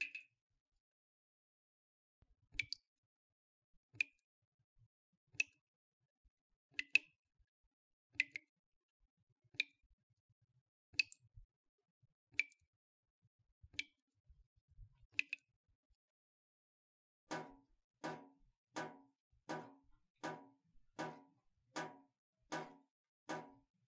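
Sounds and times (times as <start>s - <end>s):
water dripping from faucet: 0.0s - 0.3s, 2.6s - 2.9s, 4.0s - 4.2s, 5.4s - 5.6s, 6.8s - 7.2s, 8.2s - 8.5s, 9.6s - 9.8s, 11.0s - 11.3s, 12.4s - 12.7s, 13.7s - 14.0s, 15.2s - 15.5s, 17.3s - 23.7s.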